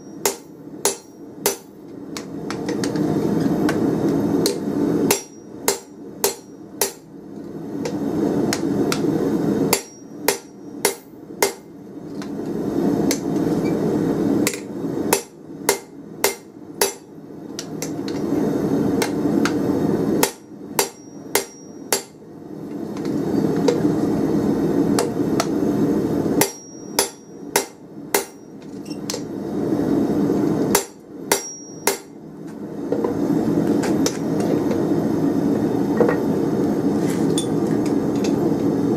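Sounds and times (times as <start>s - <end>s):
hammer striking metal die: 0.0s - 2.9s, 4.5s - 7.0s, 9.7s - 11.7s, 15.2s - 17.1s, 20.2s - 22.2s, 26.4s - 28.4s, 30.7s - 32.1s
low steady hum: 0.0s - 38.9s.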